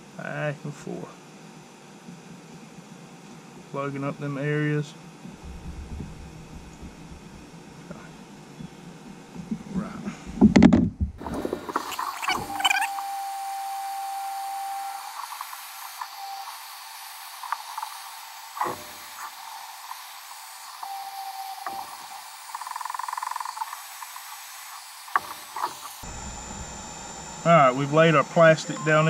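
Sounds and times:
heat gun blowing hiss: 11.2s - 26.6s.

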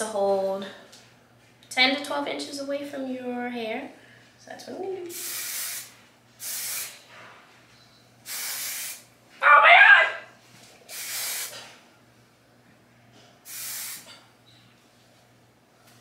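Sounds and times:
aerosol spray hissing: 5.1s - 7.0s, 8.3s - 9.0s, 10.9s - 11.6s, 13.5s - 14.2s.

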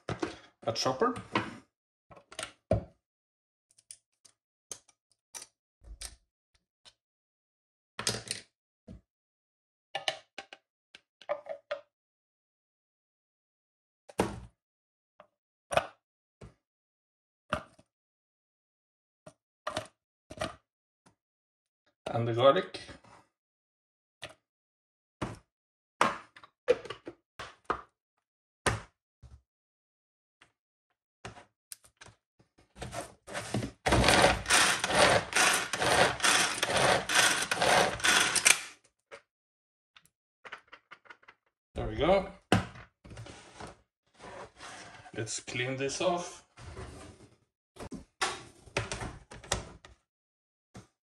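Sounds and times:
manual food chopper pull strokes: 33.9s - 38.7s.

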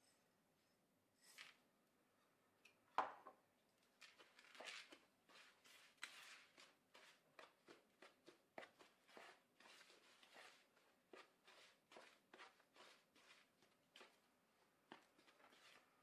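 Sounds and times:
hand mixing dry ingredients in bowl: 3.8s - 16.0s.

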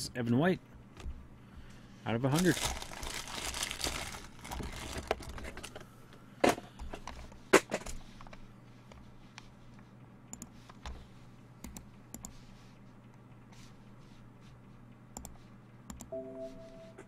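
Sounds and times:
short low tone: 16.2s - 17.0s.

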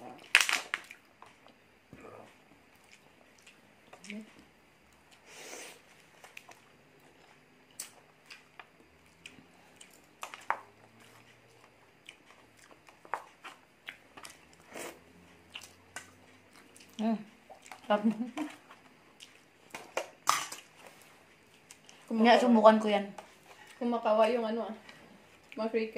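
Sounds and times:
chewing and biting food: 6.0s - 19.8s.

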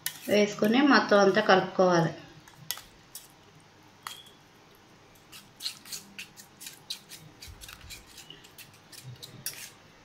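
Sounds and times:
metal spoon scraping steel bowl: 0.0s - 0.8s, 5.3s - 9.8s.

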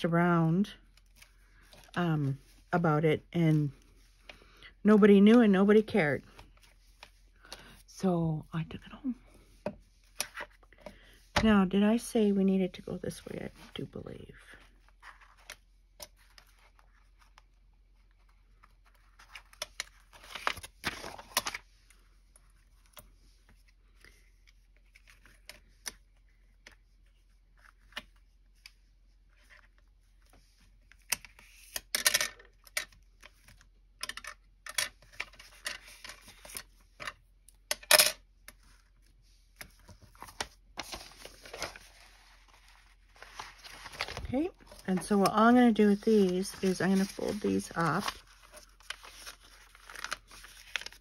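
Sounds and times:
paper rustling: 14.5s - 31.9s, 38.5s - 51.0s.

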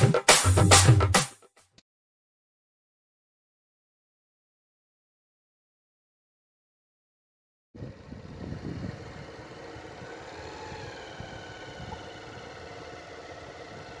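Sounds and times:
wind rumbling on microphone: 7.8s - 12.8s
vehicle engine running: 7.8s - 14.0s.

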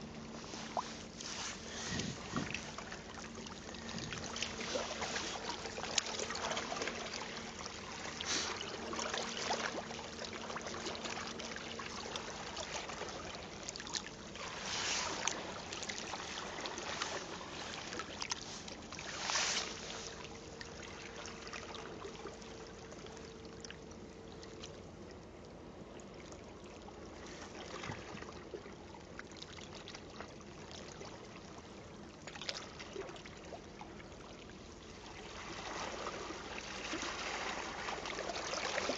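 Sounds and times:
sea water lapping and sloshing: 0.0s - 38.9s
water splashes: 0.1s - 23.8s, 32.2s - 38.9s.

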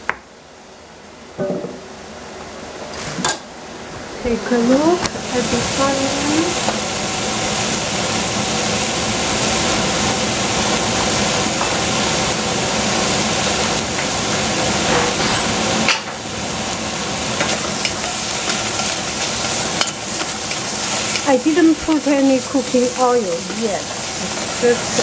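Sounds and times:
onions sizzling in a saucepan: 4.3s - 25.0s.

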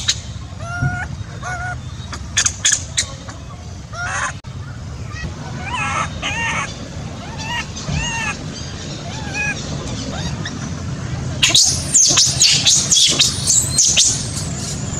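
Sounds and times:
monkeys calling: 0.0s - 14.9s.

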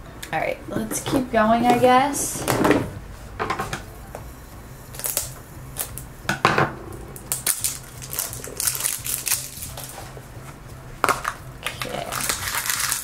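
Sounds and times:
plastic wrap crinkling: 5.0s - 6.0s, 7.2s - 10.3s, 11.0s - 13.0s.

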